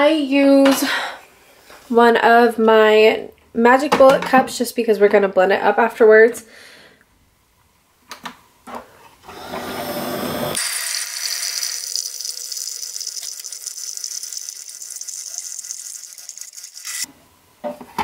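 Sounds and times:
coffee maker pump hiss and buzz: 0:09.3 - 0:17.1.

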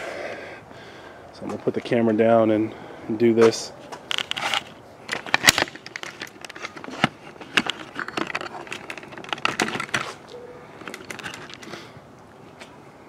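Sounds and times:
footsteps on concrete: 0:01.4 - 0:02.4.

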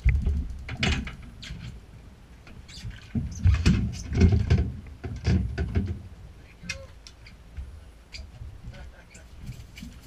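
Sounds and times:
knocks and clatter: 0:00.0 - 0:01.8, 0:02.8 - 0:06.0
wind buffeting microphone: 0:00.0 - 0:06.1.

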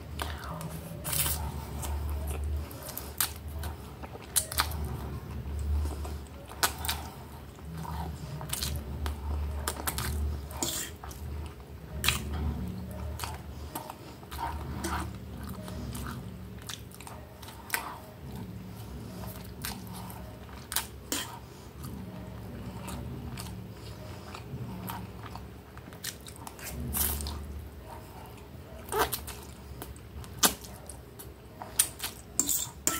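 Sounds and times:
low steady rumble: 0:00.0 - 0:31.6
person chewing and mouth smacks: 0:00.1 - 0:05.0, 0:05.6 - 0:18.5, 0:19.2 - 0:32.9.

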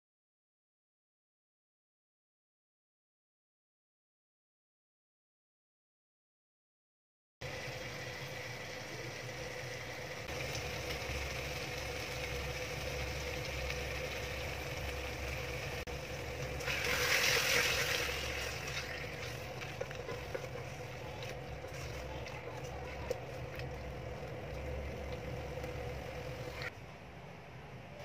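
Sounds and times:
cooking hiss: 0:07.4 - 0:26.7
gas stove humming: 0:07.4 - 0:26.7.

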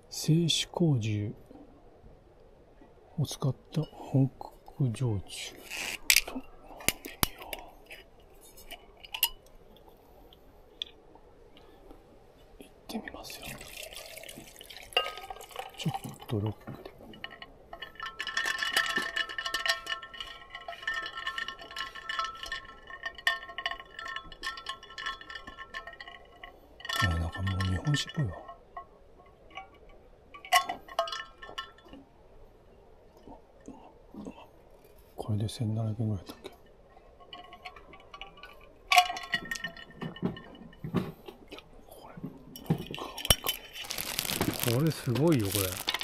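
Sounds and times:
ice cubes clinking in glass: 0:13.4 - 0:16.4, 0:43.2 - 0:46.0.

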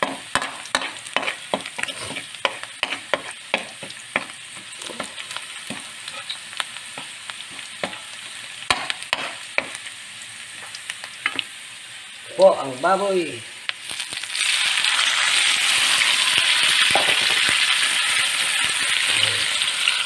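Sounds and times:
onion sizzling in hot oil: 0:00.0 - 0:20.0
metal spoon scraping wok: 0:00.1 - 0:05.3, 0:08.8 - 0:09.4.

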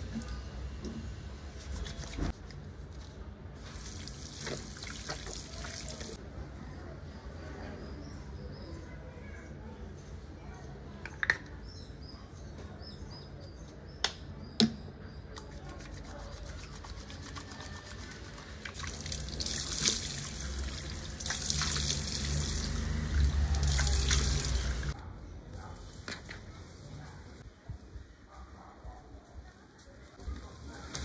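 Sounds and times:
tap water running into basin: 0:03.8 - 0:06.2, 0:16.8 - 0:25.0.

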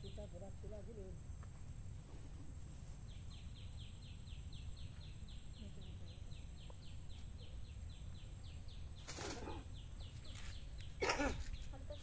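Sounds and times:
bird chirping: 0:00.0 - 0:01.2, 0:02.6 - 0:12.0.

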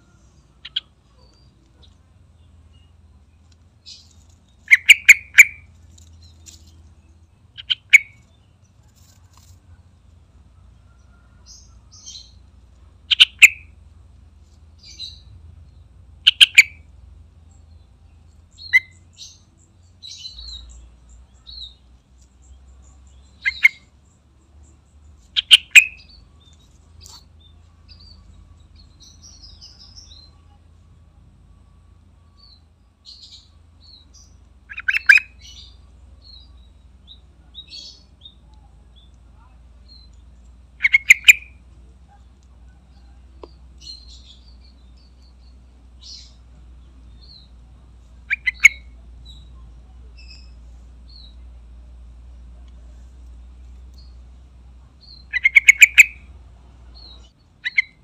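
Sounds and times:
bird calling sharp phrases: 0:00.0 - 0:03.0, 0:03.8 - 0:08.6, 0:10.9 - 0:13.8, 0:16.2 - 0:16.9, 0:18.1 - 0:24.0, 0:25.1 - 0:30.7, 0:32.3 - 0:51.5, 0:54.9 - 0:58.0
soft high bird chirps: 0:00.0 - 0:58.0.

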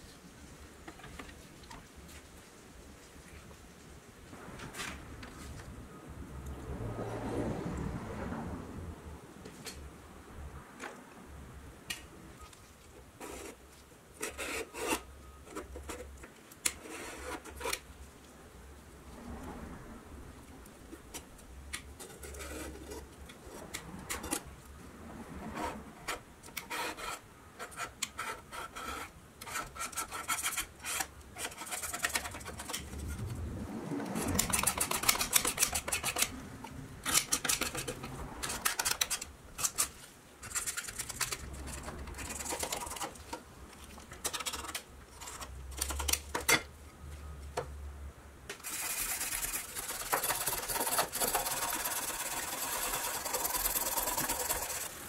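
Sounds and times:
scraper blade scraping metal: 0:14.2 - 0:15.1, 0:22.0 - 0:24.5, 0:25.6 - 0:32.9, 0:34.2 - 0:36.3, 0:48.6 - 0:55.0
wire brush scrubbing metal: 0:48.6 - 0:55.0.

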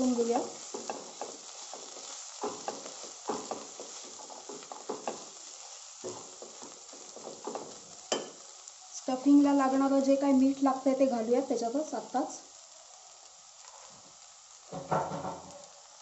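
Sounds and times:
spatula stirring and scraping: 0:00.0 - 0:08.8
peas sizzling in oil: 0:00.0 - 0:16.0.

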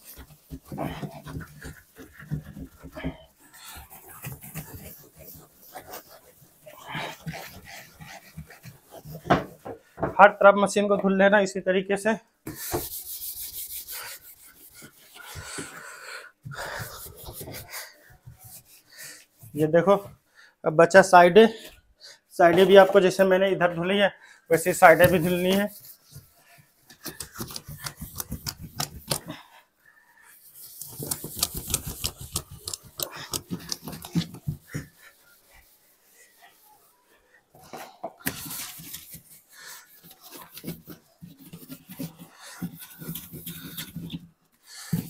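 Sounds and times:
wet hands scrubbing plastic: 0:24.5 - 0:29.4, 0:30.4 - 0:45.0.

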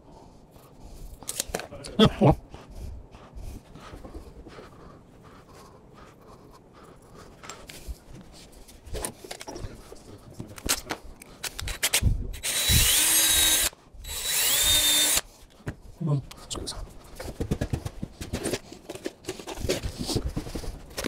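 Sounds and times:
cordless drill whining: 0:11.6 - 0:15.3.

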